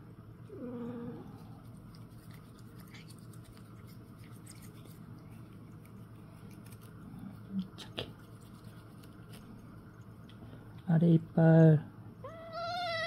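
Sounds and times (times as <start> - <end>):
toothbrush bristles scraping teeth: 1.4 - 7.0, 8.1 - 9.5.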